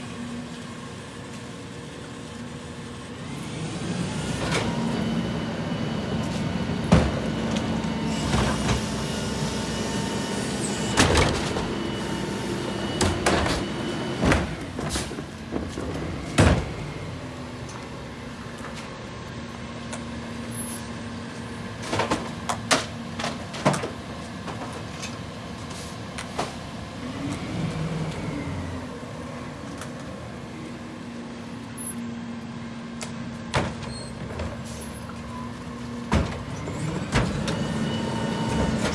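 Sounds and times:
garbage truck idling: 0.2s - 26.0s
trash carts banging and clattering: 3.3s - 17.9s, 20.8s - 25.3s, 32.9s - 38.9s.

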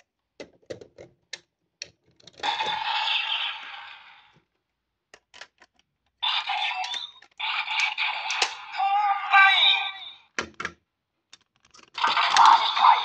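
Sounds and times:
toy electronic sound effect: 2.4s - 4.3s, 6.2s - 10.3s, 12.0s - 13.0s
plastic clicks: 5.1s - 6.2s, 6.8s - 8.6s, 10.4s - 12.6s.

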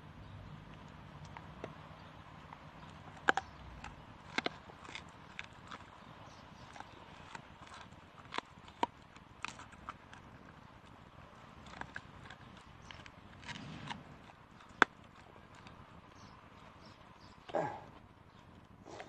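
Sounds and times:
dog gnawing bone: 0.4s - 19.0s.

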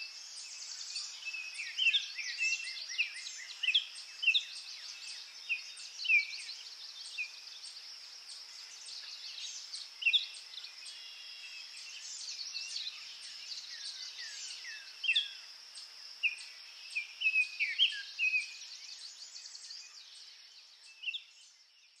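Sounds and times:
songbirds chirping: 0.0s - 22.0s.

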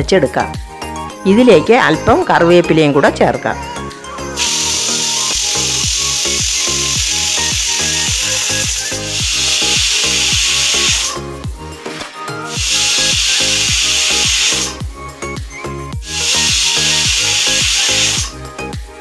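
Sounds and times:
pressure cooker whistling steam: 4.3s - 11.2s, 12.5s - 14.8s, 15.5s - 18.4s.

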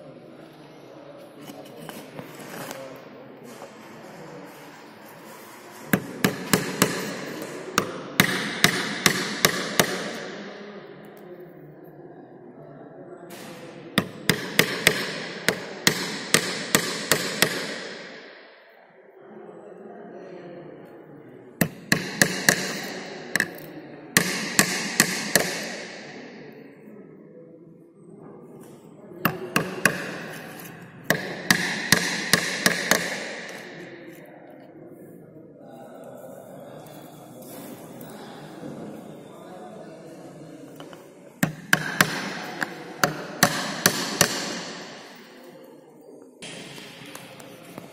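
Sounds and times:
low background noise: 0.0s - 47.9s
hammer striking nails: 5.9s - 10.4s, 13.4s - 18.3s, 21.6s - 26.2s, 29.3s - 34.2s, 41.4s - 45.2s.

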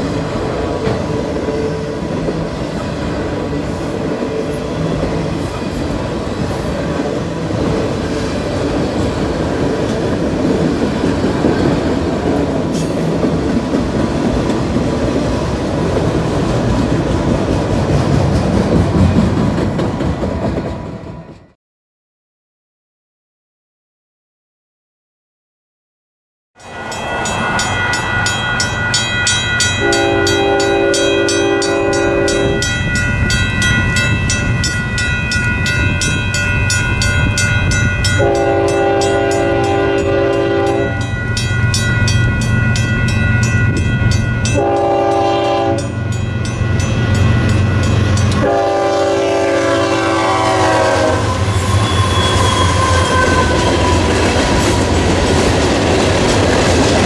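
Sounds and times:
rapid bell ringing: 26.6s - 44.6s, 45.8s - 48.4s
train horn blasts: 29.8s - 32.8s, 38.0s - 41.1s, 44.5s - 46.0s, 48.3s - 54.8s.

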